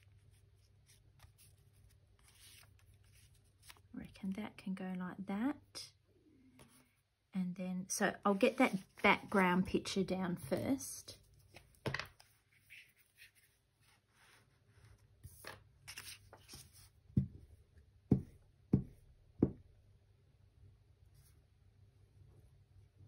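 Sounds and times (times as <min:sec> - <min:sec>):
paper rustling: 0:00.0 - 0:03.9, 0:14.2 - 0:17.0.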